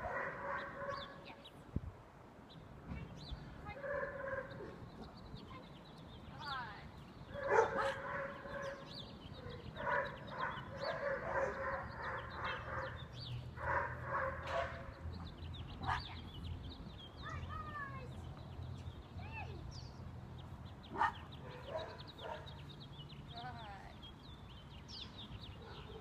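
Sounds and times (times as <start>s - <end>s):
small birds chirping: 0.0s - 26.0s
puppy barking and yipping: 7.4s - 8.9s, 9.5s - 13.0s.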